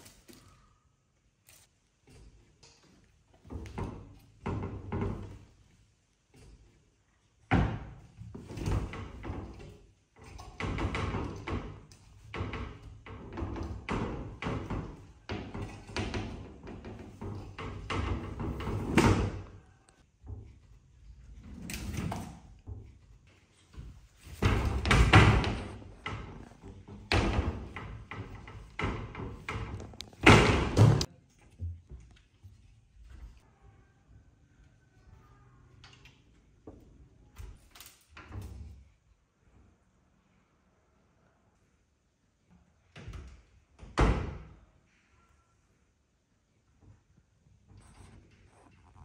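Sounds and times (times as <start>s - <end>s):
glass cabinet doors rattling: 7.5s - 19.6s, 24.2s - 31.1s.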